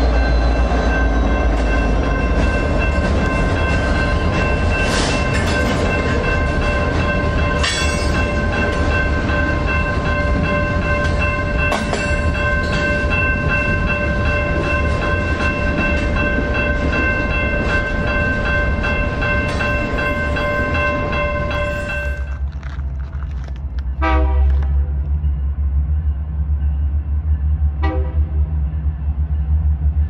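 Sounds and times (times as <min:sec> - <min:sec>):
high ringing tones: 0:00.0 - 0:22.4
freight train rumbling past: 0:00.0 - 0:30.0.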